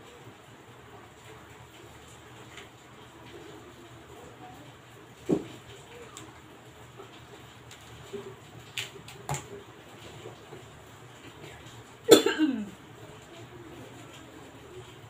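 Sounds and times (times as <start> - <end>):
person coughing: 12.1 - 12.8.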